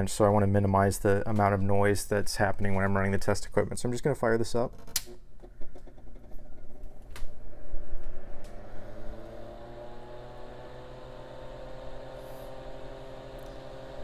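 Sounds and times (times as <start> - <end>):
cooling fan whine and hum: 6.3 - 14.0.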